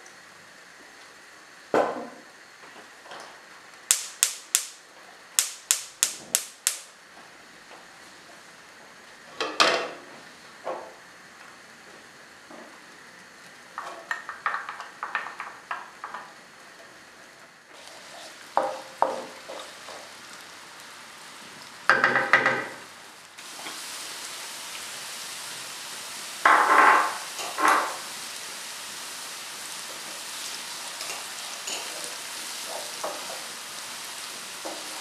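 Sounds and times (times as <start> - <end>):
onion sizzling in a pan: 0.0 - 35.0.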